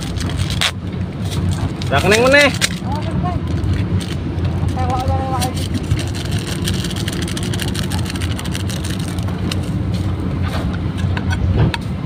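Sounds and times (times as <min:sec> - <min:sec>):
plastic packaging crackling: 0:00.0 - 0:00.8, 0:01.4 - 0:09.8
low rumble: 0:00.0 - 0:12.0.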